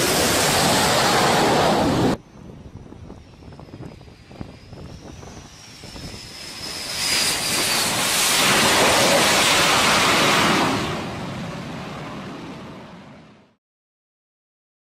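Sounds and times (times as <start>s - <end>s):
wind on microphone: 0.0s - 10.6s
jet engine roar: 0.0s - 13.6s.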